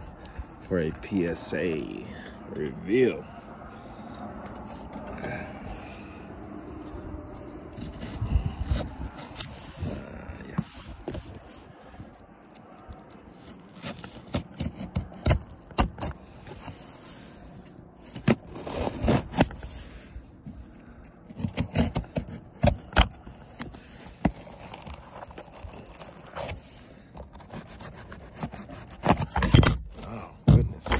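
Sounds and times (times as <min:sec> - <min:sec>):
knife slitting packing tape: 0:07.4 - 0:11.5, 0:12.8 - 0:20.0, 0:21.2 - 0:30.2.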